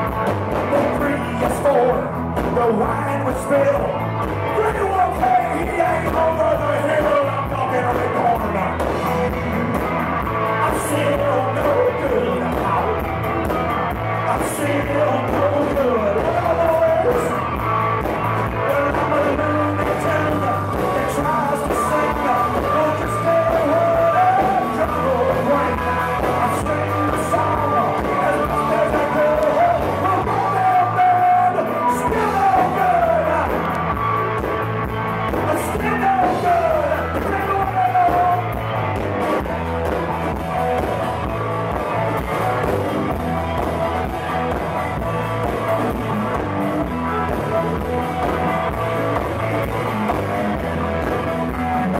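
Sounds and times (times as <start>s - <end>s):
blues-rock band playing: 0.0s - 51.9s
person singing: 0.6s - 13.2s, 14.0s - 17.8s, 18.4s - 34.2s, 35.3s - 39.7s.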